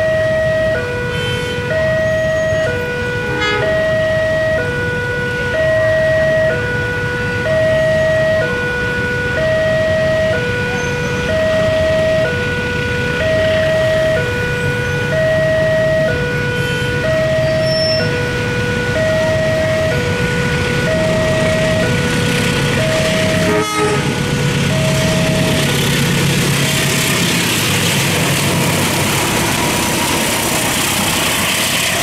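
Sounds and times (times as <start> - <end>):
level crossing alarm two tones: 0.0 - 25.8.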